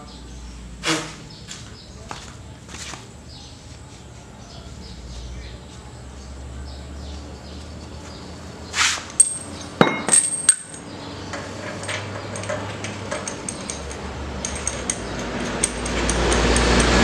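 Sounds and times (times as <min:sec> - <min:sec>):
metal tools clinking: 0:09.1 - 0:17.0.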